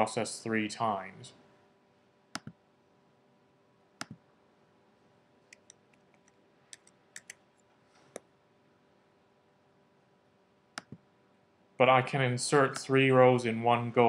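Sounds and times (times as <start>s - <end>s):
computer mouse clicks: 2.4s - 2.6s, 4.0s - 4.2s, 5.5s - 7.4s, 10.8s - 11.0s.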